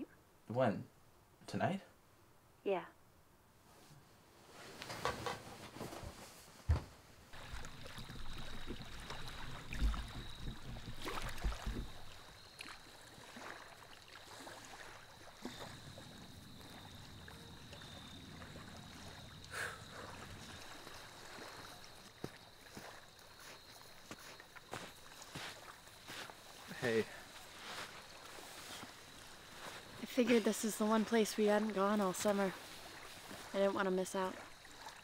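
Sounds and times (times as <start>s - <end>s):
wind: 0.0s - 35.0s
water by a shore: 7.3s - 35.0s.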